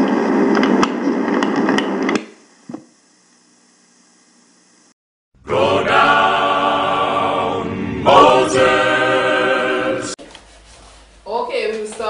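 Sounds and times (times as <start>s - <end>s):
choir singing held chords: 5.4s - 10.2s.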